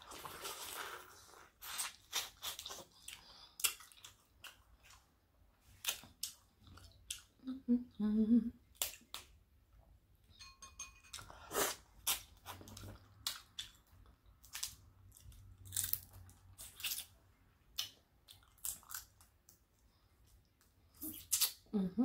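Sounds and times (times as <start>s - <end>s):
person chewing food: 0.0s - 7.5s, 11.1s - 21.6s.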